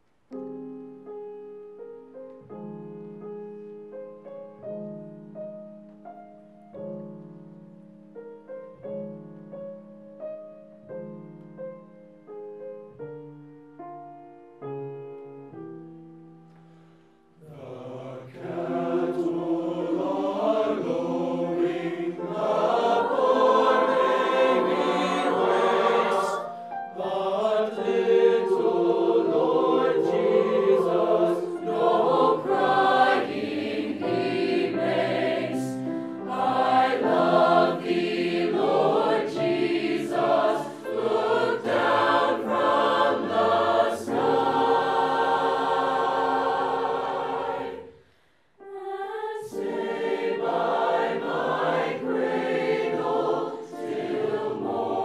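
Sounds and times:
choir singing in parts: 17.4s - 55.0s.

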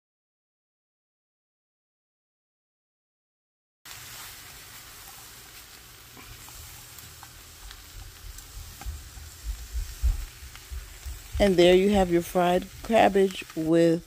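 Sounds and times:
frying pan sizzle: 3.9s - 14.0s
pans ticking and bumping: 4.1s - 14.0s.

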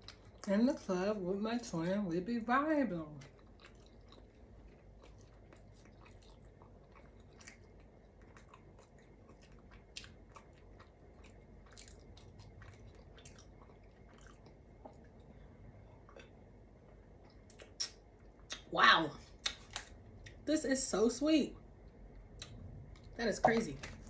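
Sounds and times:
pretzel chewing crunches: 3.1s - 15.4s
wet mouth clicks: 17.3s - 18.7s.

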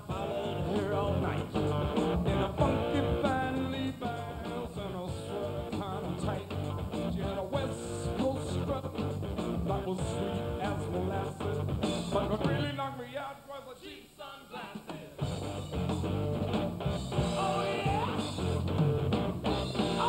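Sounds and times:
electric guitar: 0.0s - 12.6s, 15.2s - 20.0s
bass guitar: 0.0s - 12.8s, 15.2s - 20.0s
man singing lead vocal: 0.0s - 15.2s, 17.2s - 18.6s
drums: 0.0s - 20.0s.

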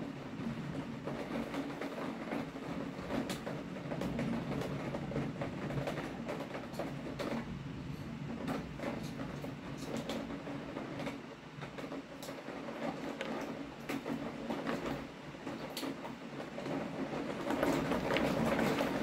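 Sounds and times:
raindrops tapping: 8.4s - 19.0s.

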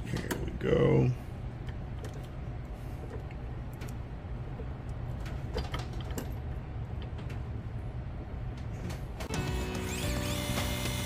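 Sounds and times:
line-spooling motor humming: 9.3s - 11.0s.

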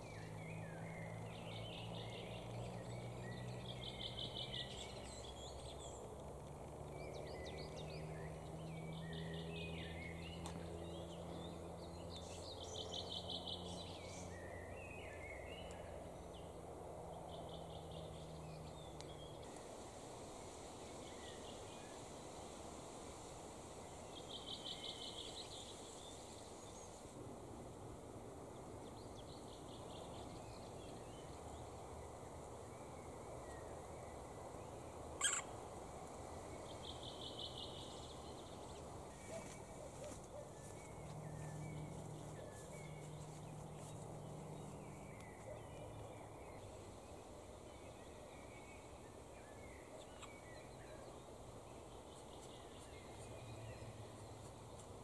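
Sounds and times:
woodpecker nestlings trilling: 35.2s - 35.5s.

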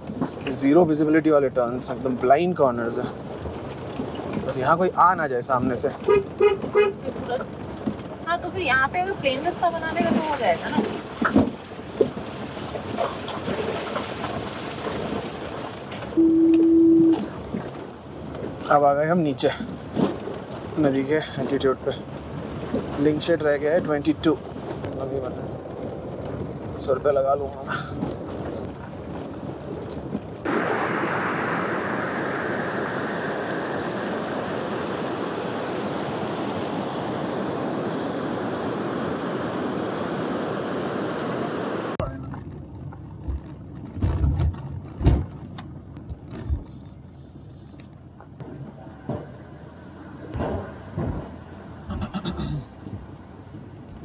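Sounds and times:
car driving on rough ground: 0.0s - 16.2s, 17.3s - 30.7s, 31.9s - 54.0s
fast-flowing river rushing: 30.5s - 42.0s.

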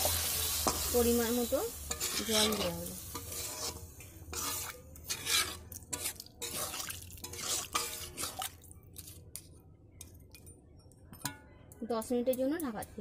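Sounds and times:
metal spatula scraping a pan: 0.1s - 8.6s.

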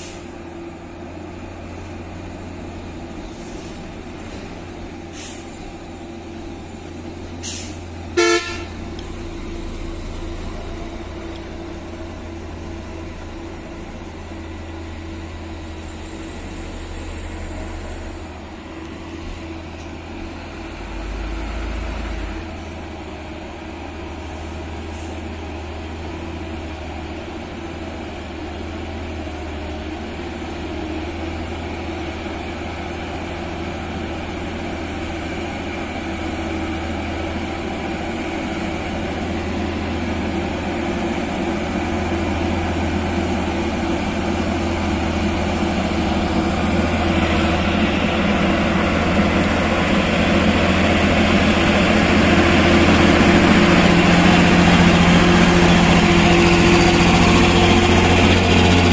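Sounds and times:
diesel truck engine running: 0.0s - 58.9s
short horn toot: 7.5s - 8.8s.

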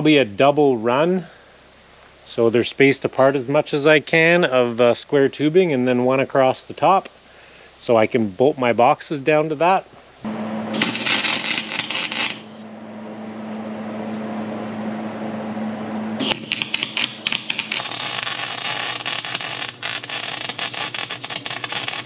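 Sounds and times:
steady hum: 10.2s - 22.0s
welding arc crackling: 10.7s - 12.7s, 16.2s - 22.0s.

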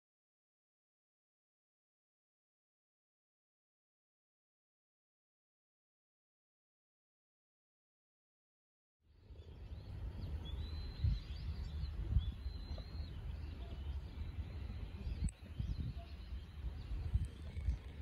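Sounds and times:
small birds chirping: 9.2s - 18.0s.

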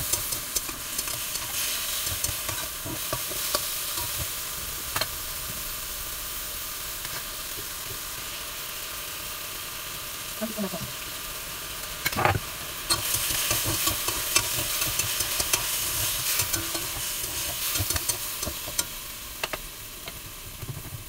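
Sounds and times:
utensils scraping a wok: 0.0s - 4.3s, 12.9s - 19.0s
chicken sizzling in a wok: 0.0s - 21.0s.

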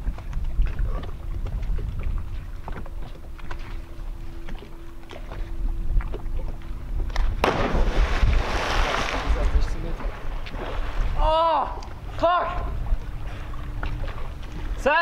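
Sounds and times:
wind rumbling on microphone: 0.0s - 14.8s
loud splash into water: 7.4s - 9.5s.

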